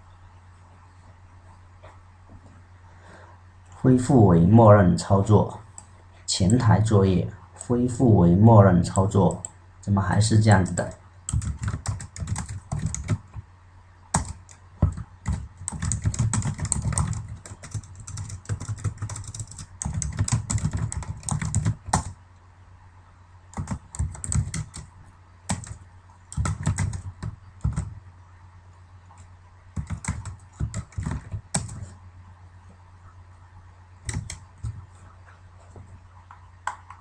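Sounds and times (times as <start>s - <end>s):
keyboard typing: 10.6s - 13.4s, 14.1s - 22.2s, 23.5s - 24.9s, 25.5s - 28.0s, 29.7s - 32.0s, 34.0s - 35.0s.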